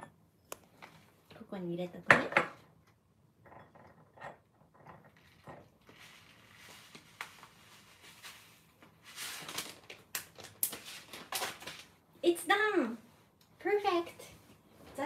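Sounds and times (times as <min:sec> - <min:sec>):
plastic packet crinkling: 0:09.2 - 0:12.0.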